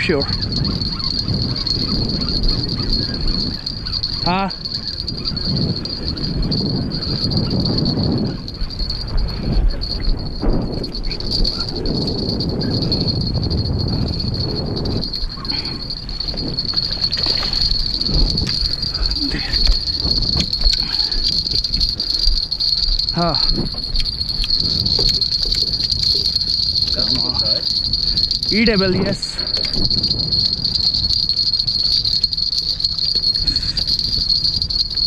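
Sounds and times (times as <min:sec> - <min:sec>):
wavering call: 0:00.0 - 0:07.3
insects chirring: 0:00.0 - 0:35.0.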